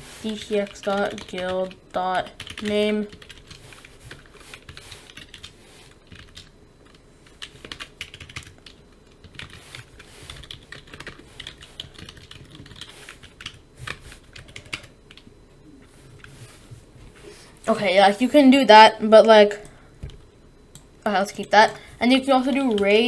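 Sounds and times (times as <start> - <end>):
keyboard typing: 0.2 - 15.3, 20.1 - 23.0.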